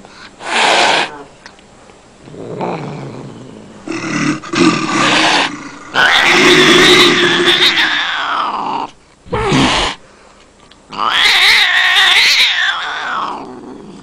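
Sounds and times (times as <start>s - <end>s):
cat yowling: 5.0s - 8.7s, 10.9s - 13.6s.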